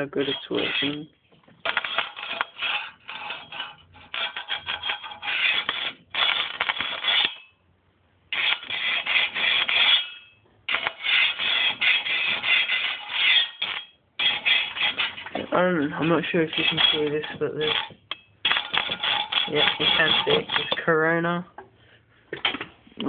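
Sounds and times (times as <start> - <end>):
electric sparks crackling and buzzing: 5.4 - 7.3.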